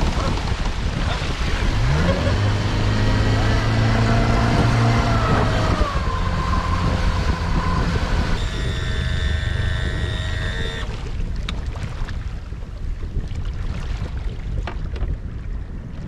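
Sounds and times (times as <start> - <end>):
outboard motor running: 0.0 - 13.2
wind on microphone: 0.0 - 16.0
steady high whine: 4.3 - 11.1.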